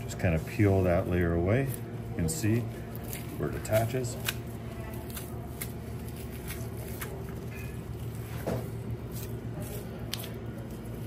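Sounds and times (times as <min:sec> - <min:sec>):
low machine hum: 0:00.0 - 0:11.0
soft wet clicks and tearing: 0:02.9 - 0:07.4, 0:09.1 - 0:11.0.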